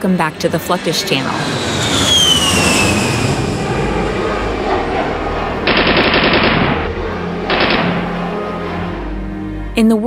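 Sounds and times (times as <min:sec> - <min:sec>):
jet aircraft rumble: 0:00.0 - 0:10.0
rapid automatic gunfire: 0:05.6 - 0:06.8, 0:07.5 - 0:08.1.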